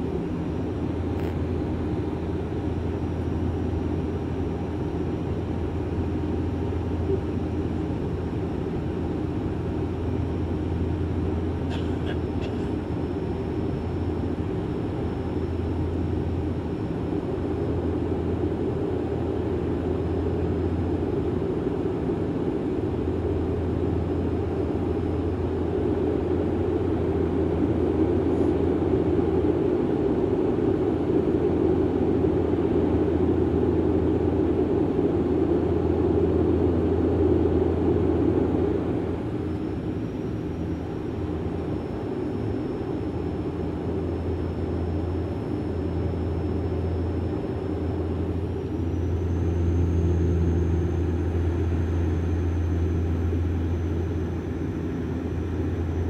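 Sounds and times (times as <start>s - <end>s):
aircraft cabin drone: 0.0s - 56.0s
thin high whine: 38.4s - 56.0s.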